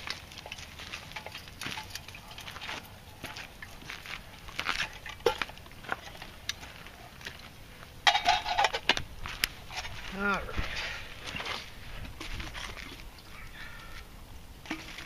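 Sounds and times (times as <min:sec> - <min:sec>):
metal bottle and cup clinking: 0:00.0 - 0:02.6, 0:04.8 - 0:06.3, 0:08.0 - 0:09.0.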